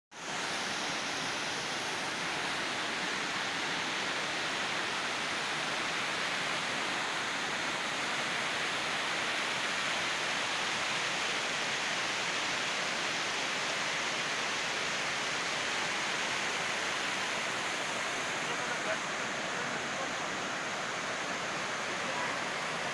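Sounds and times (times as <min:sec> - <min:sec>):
waterfall rushing over rocks: 0:00.2 - 0:22.9.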